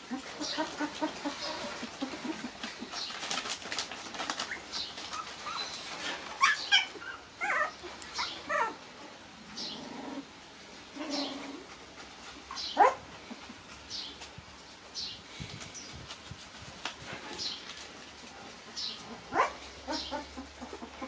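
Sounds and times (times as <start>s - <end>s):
scuffling and rustling: 0.0s - 8.7s, 12.2s - 20.9s
puppies whining: 0.0s - 10.2s, 11.0s - 14.2s, 19.0s - 21.0s
puppy yelps: 6.4s - 8.8s, 19.3s - 21.0s.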